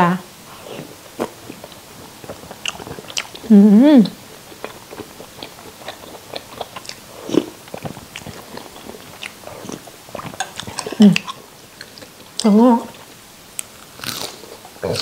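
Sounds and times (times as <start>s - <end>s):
chewing with lip smacks: 0.6s - 3.5s, 4.3s - 15.0s.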